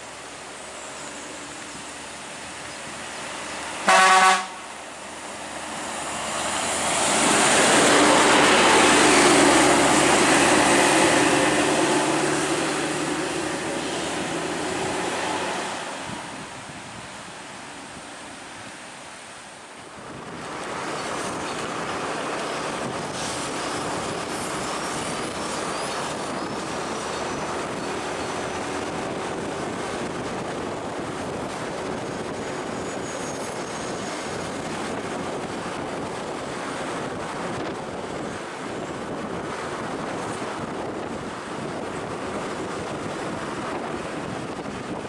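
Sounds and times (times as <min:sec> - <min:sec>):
heavy vehicle running: 0:00.0 - 0:17.5, 0:19.9 - 0:45.0
faint high squeaks: 0:32.5 - 0:34.6.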